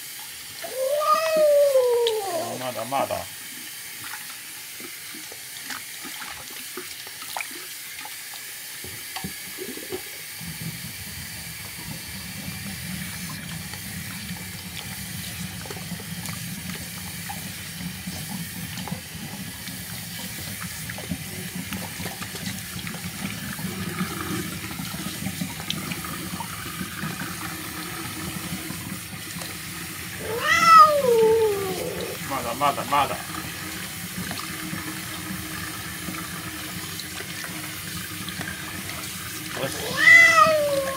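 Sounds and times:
water running: 0.0 - 40.9.

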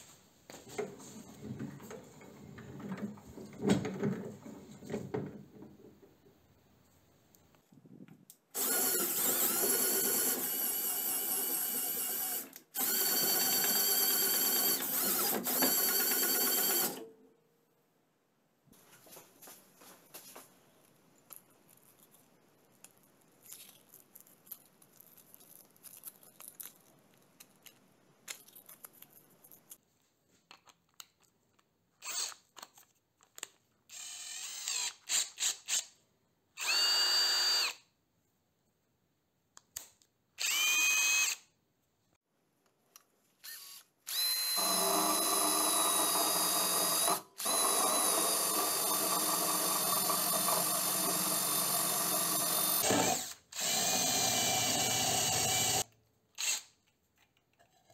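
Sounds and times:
cordless drill spinning: 8.6 - 17.0, 32.0 - 32.4, 33.9 - 35.9, 36.6 - 37.8, 40.4 - 41.5, 43.4 - 56.8.

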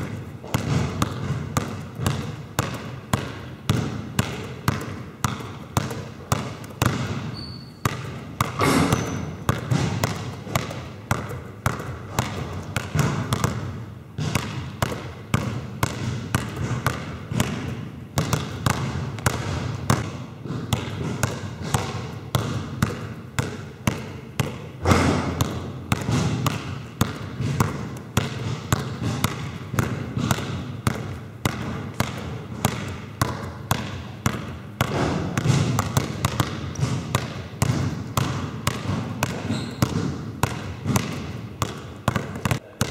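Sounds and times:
basketballs bouncing on court: 0.0 - 42.9.

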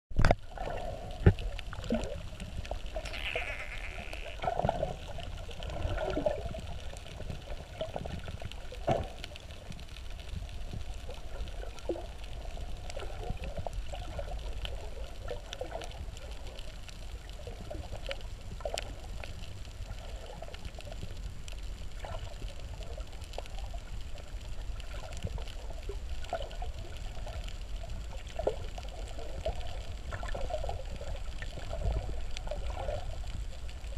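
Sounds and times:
underwater gurgles: 0.1 - 33.9
underwater low rumble: 0.1 - 33.9.

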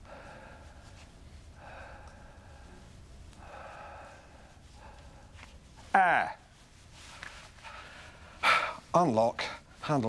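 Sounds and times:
man making breathy hissing sounds: 8.3 - 8.9.

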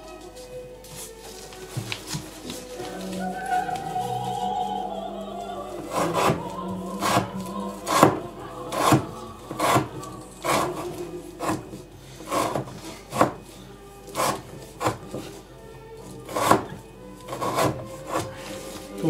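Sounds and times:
knife cutting rope on wooden board: 7.9 - 13.4, 14.1 - 15.4, 16.3 - 18.3.

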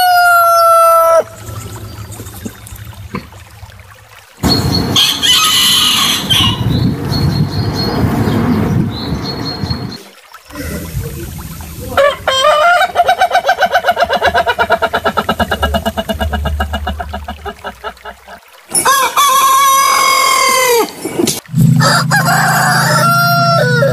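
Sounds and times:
roosters crowing: 0.0 - 1.7, 4.5 - 6.8, 12.0 - 14.7, 18.8 - 20.9, 21.8 - 23.9.

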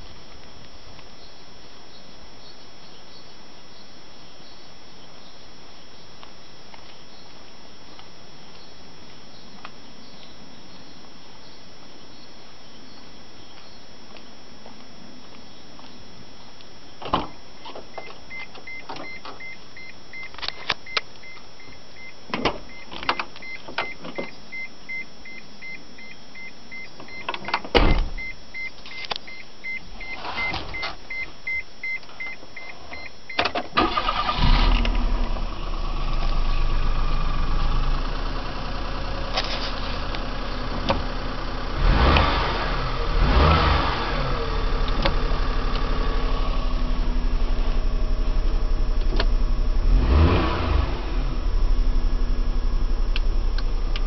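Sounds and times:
loud thump: 27.8 - 28.2
car warning chime beeping: 28.2 - 34.4
car engine starting and idling: 32.7 - 54.0.

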